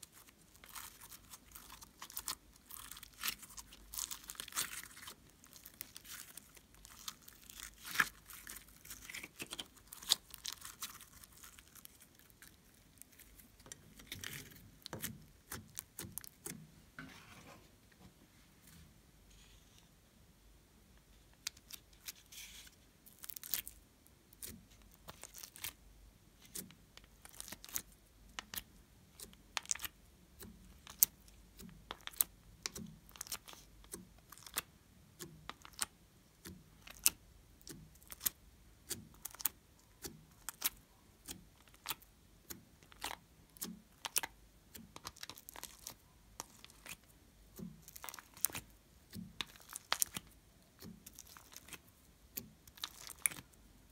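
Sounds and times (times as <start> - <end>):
soft sticky pops: 26.4 - 53.9.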